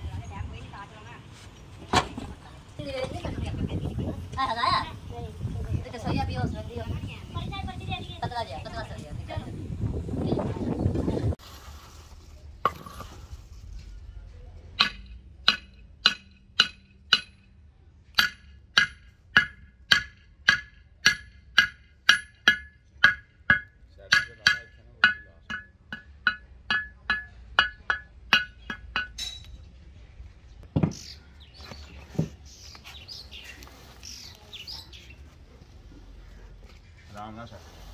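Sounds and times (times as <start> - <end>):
hammer clinking on metal: 18.2 - 29.6
dull thump: 30.6 - 31.0.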